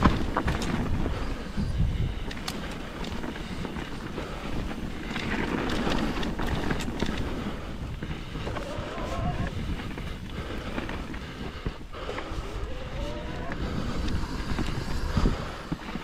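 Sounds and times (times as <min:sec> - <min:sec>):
bike knocks and rattles: 0:00.0 - 0:01.2
tyres rumbling on dirt: 0:00.0 - 0:16.0
wind buffeting microphone: 0:00.0 - 0:16.0.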